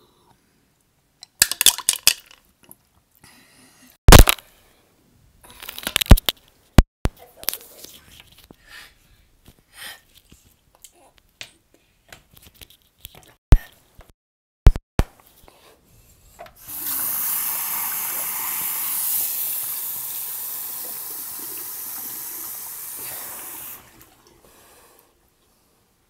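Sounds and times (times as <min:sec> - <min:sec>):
tap water running into sink: 0:16.6 - 0:24.4.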